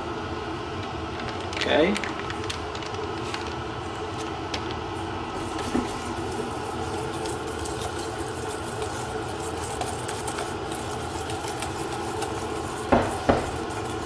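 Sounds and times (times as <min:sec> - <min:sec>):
steady machine hum: 0:00.0 - 0:14.0
whisk beating in steel bowl: 0:05.4 - 0:14.0.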